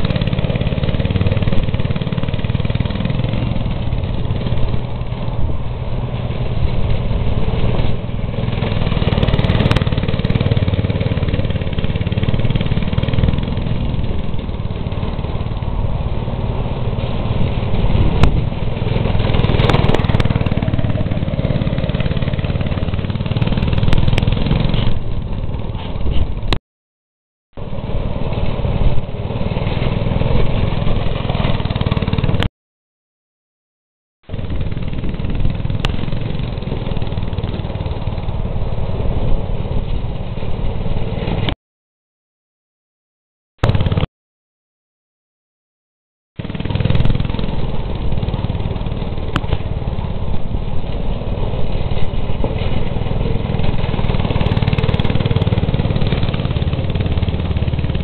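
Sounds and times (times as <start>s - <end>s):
go-kart engine running: 0.0s - 26.6s, 27.6s - 32.5s, 34.2s - 41.6s, 43.6s - 44.1s, 46.4s - 58.0s.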